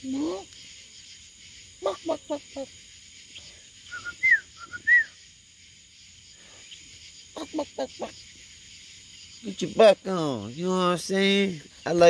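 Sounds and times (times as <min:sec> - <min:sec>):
crickets chirring: 0:00.0 - 0:12.0
bird clucking: 0:01.7 - 0:02.8, 0:07.3 - 0:08.3
bird whistled notes: 0:03.8 - 0:05.2.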